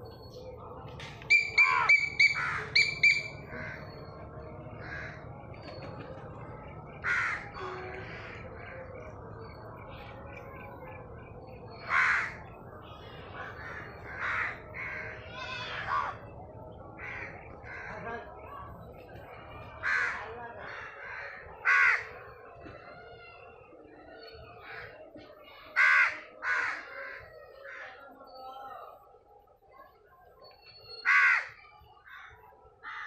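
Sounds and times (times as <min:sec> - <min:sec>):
crows cawing: 0:01.6 - 0:02.8, 0:03.5 - 0:04.0, 0:04.8 - 0:05.3, 0:07.0 - 0:08.9, 0:11.8 - 0:12.5, 0:13.4 - 0:16.2, 0:17.0 - 0:18.1, 0:19.8 - 0:22.2, 0:25.8 - 0:28.0, 0:31.0 - 0:33.0.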